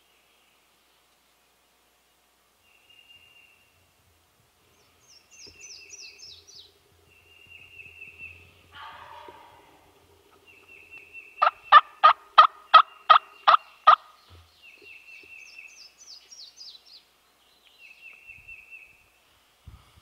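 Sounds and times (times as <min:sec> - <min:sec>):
songbird trill: 0:02.6 - 0:19.3
turkey yelps: 0:08.7 - 0:09.9, 0:11.4 - 0:14.0.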